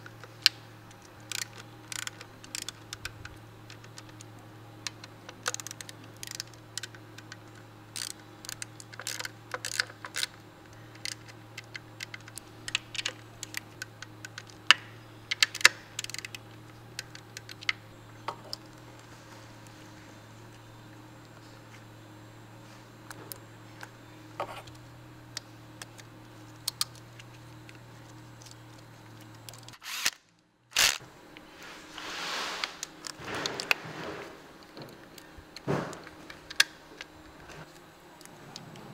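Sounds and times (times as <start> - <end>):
low steady hum: 0.0 - 38.9
ratchet clicking: 0.4 - 17.8, 26.6 - 31.0.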